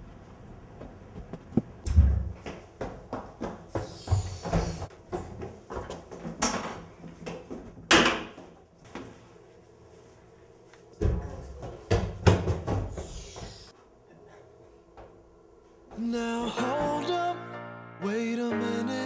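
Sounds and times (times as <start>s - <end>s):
doors knocking and banging: 11.0s - 13.0s.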